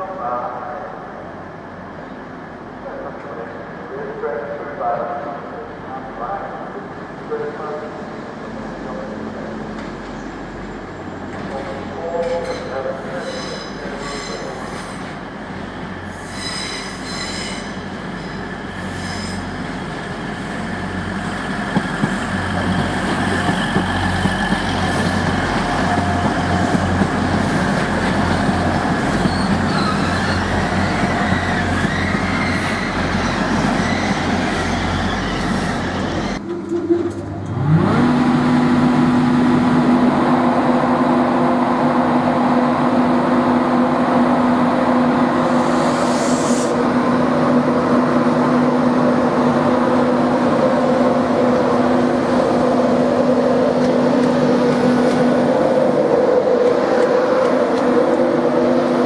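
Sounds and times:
electric locomotive hum: 0:04.9 - 0:59.0
train wheels squealing on rails: 0:12.2 - 0:15.2, 0:16.0 - 0:19.7, 0:28.9 - 0:37.2, 0:45.6 - 0:46.8
diesel engines droning: 0:46.6 - 0:59.0.

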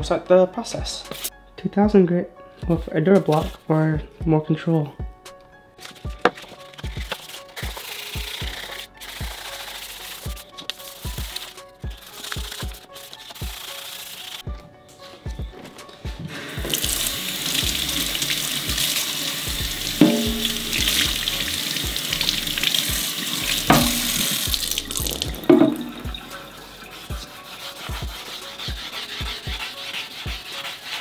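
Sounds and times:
hand wet sanding plastic: 0:06.4 - 0:14.4, 0:16.3 - 0:31.0
faucet water running into sink: 0:16.6 - 0:27.0.

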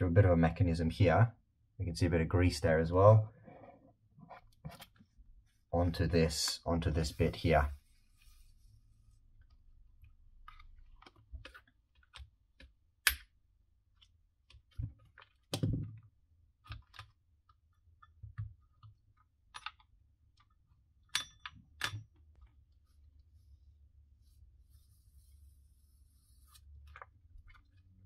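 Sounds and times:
plastic parts clicking and knocking: 0:10.4 - 0:22.6.

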